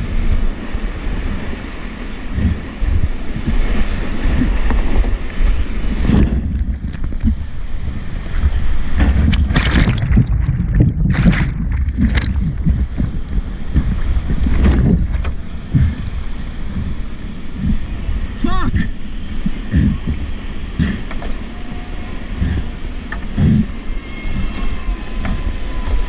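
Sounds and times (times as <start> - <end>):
wind rumble on microphone: 0.0 - 26.0
whitewater rushing: 1.6 - 21.0
sharp water splashes: 9.0 - 13.4.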